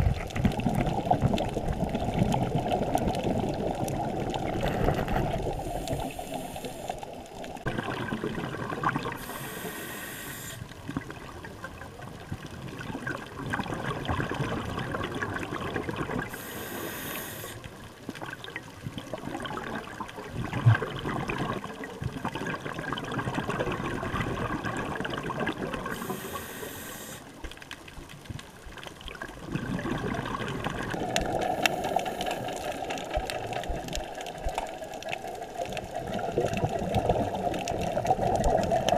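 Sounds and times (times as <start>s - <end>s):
regulator bubbles: 0.0s - 17.0s, 18.1s - 26.6s, 29.0s - 38.9s
muffled underwater water wash: 0.0s - 38.9s
short hiss: 9.2s - 10.6s, 16.4s - 17.6s, 26.0s - 27.2s.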